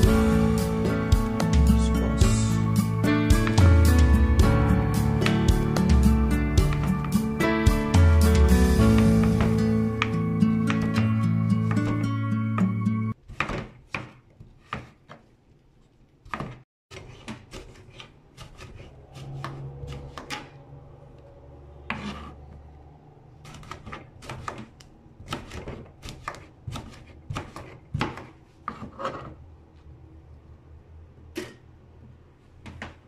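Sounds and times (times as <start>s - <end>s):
knife chopping on plastic board: 3.3s - 3.7s, 6.6s - 7.2s, 8.8s - 12.0s, 12.6s - 15.2s, 16.2s - 20.4s, 23.4s - 29.3s
low hum: 18.9s - 23.5s.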